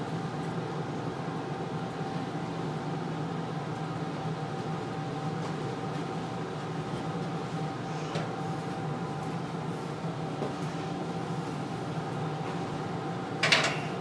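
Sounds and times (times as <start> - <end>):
mechanical hum: 0.0 - 14.0.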